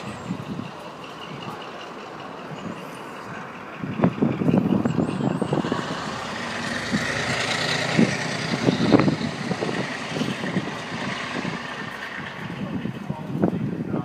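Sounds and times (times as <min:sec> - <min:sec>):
diesel locomotive running: 0:00.0 - 0:14.0.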